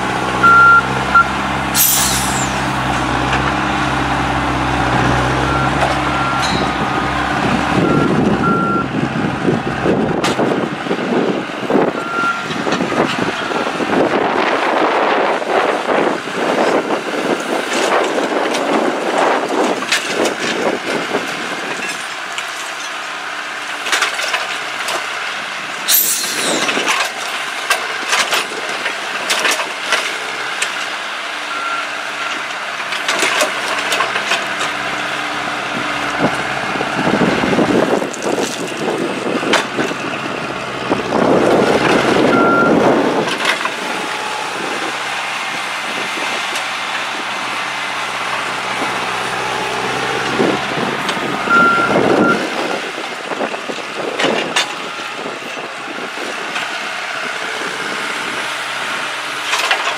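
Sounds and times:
engine running steadily: 0.0s - 59.9s
short beeps: 0.4s - 2.7s, 51.5s - 52.4s.

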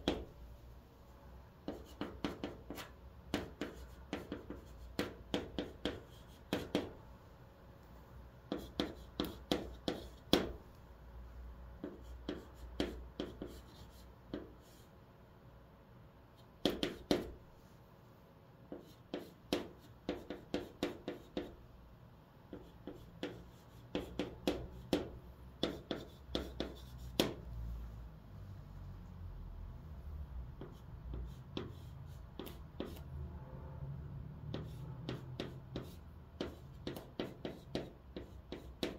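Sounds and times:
chalk tapping and scratching: 0.0s - 0.3s, 1.6s - 7.0s, 8.5s - 10.7s, 11.8s - 14.9s, 16.4s - 17.4s, 18.7s - 21.6s, 22.5s - 27.4s, 30.6s - 33.1s, 34.5s - 38.9s.

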